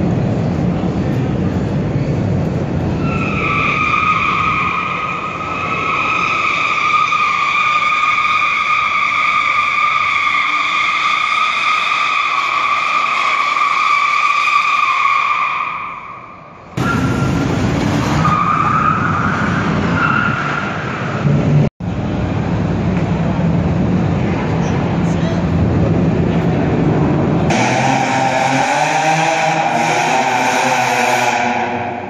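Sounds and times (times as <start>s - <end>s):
tires squealing: 2.1s - 21.6s, 26.8s - 32.0s.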